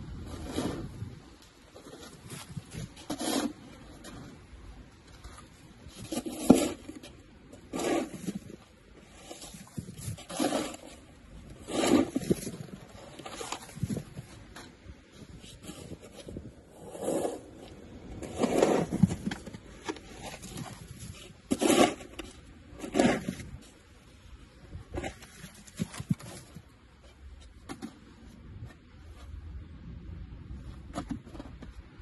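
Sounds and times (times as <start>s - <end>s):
plastic shovel scraping snow: 0.1s - 1.2s, 1.8s - 4.4s, 5.2s - 23.7s, 24.9s - 26.6s.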